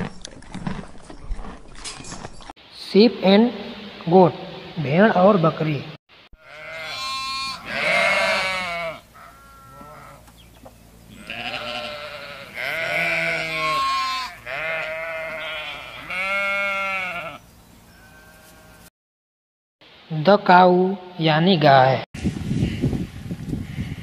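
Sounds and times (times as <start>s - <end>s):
sheep and goats bleating: 6.4s - 10.2s, 11.1s - 18.9s.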